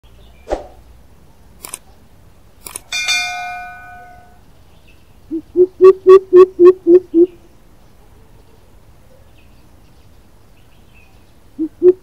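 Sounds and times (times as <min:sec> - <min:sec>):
sharp clicks: 0:01.6 - 0:01.9, 0:02.6 - 0:02.9
metallic clang ringing: 0:02.9 - 0:04.4
bird deep hooting call: 0:11.6 - 0:12.0.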